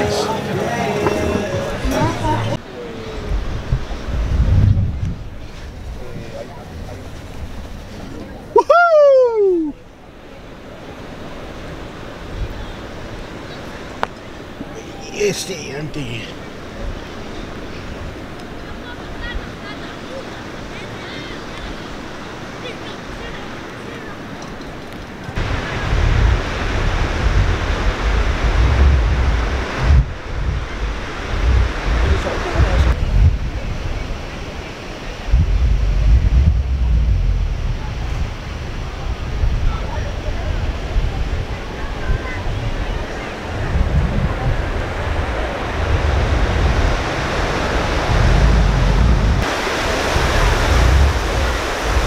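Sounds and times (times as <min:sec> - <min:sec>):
surf rushing on beach: 0:00.0 - 0:52.0
wind buffeting microphone: 0:01.8 - 0:14.8, 0:24.2 - 0:52.0.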